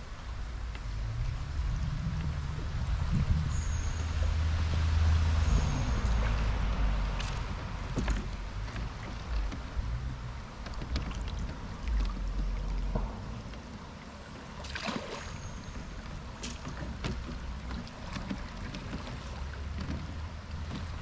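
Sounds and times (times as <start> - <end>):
low rumble: 0.0 - 13.8
river water gurgling and lapping: 0.0 - 21.0
small knocks and splashes: 5.4 - 13.7, 14.4 - 21.0.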